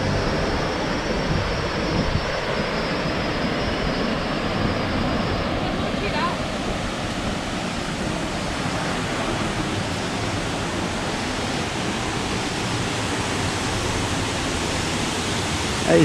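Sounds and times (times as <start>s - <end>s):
waterfall rushing: 8.0s - 16.0s.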